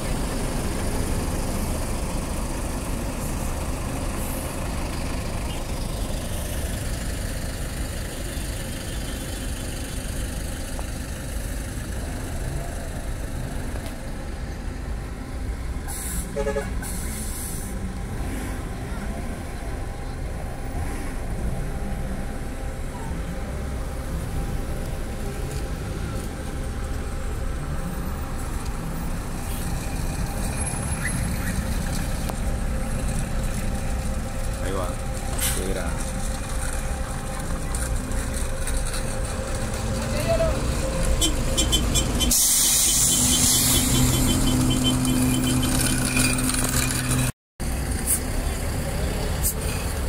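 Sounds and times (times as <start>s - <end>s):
bus diesel engines rumbling: 0.0s - 50.0s
short hiss bursts: 42.3s - 44.1s.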